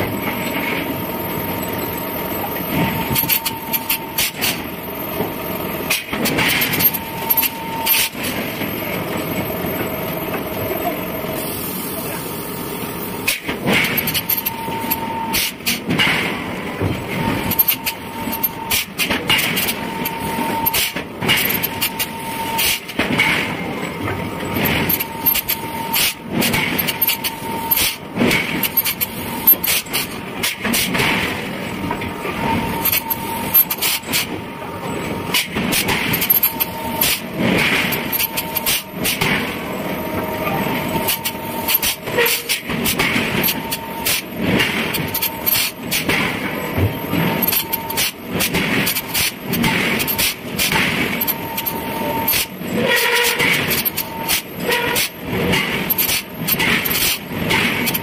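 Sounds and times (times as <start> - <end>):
machinery din: 13.1 - 58.0.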